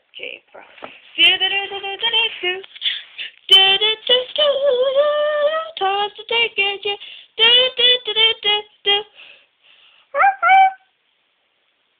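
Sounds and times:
child singing: 0:03.5 - 0:09.1.

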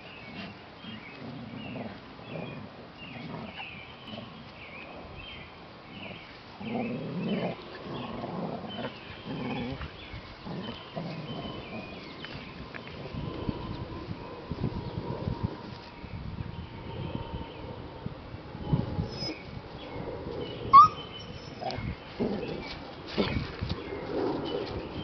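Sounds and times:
dogs play growling: 0:00.0 - 0:15.9, 0:18.8 - 0:25.0
birds chirping: 0:00.0 - 0:18.0, 0:18.6 - 0:25.0.

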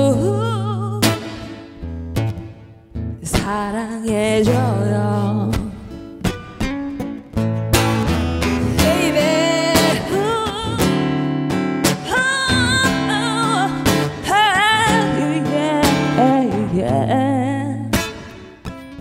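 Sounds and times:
person singing with vibrato: 0:00.0 - 0:01.8, 0:03.2 - 0:06.0, 0:08.6 - 0:11.3, 0:11.9 - 0:18.4
guitar chords: 0:00.0 - 0:19.0.

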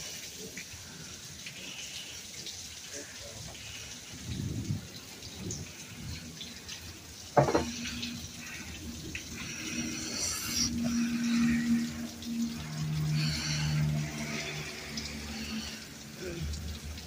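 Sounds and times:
rain falling and dripping: 0:00.0 - 0:17.0
sudden knock: 0:07.4 - 0:07.7.

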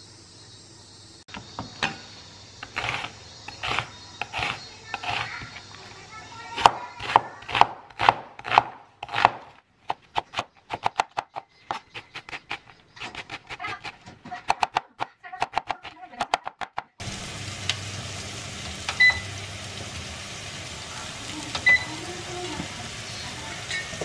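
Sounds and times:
knife chopping on cutting board: 0:06.6 - 0:16.9.

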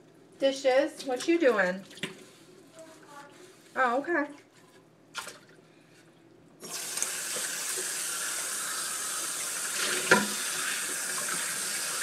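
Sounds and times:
water running into sink: 0:06.6 - 0:12.0
tap turned on: 0:09.9 - 0:10.4.

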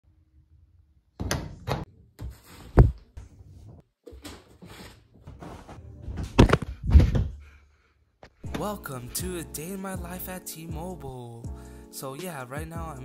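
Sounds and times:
knocks and thumps: 0:05.3 - 0:07.4.

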